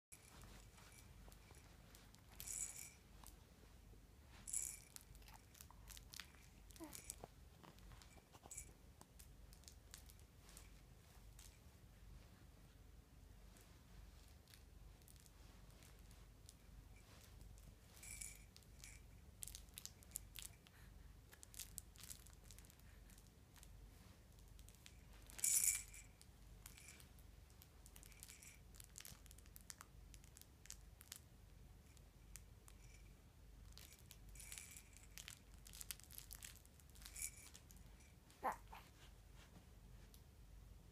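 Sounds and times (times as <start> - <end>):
rustling and crinkling of toys: 0.1 - 11.7, 13.5 - 33.0, 33.6 - 40.4.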